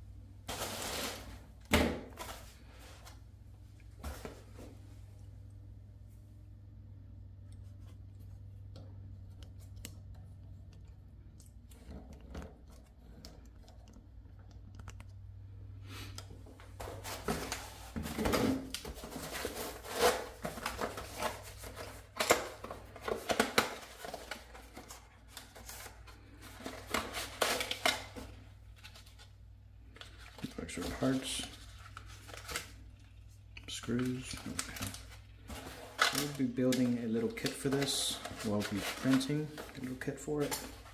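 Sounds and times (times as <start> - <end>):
packaging rustling and clicking: 29.9 - 40.9.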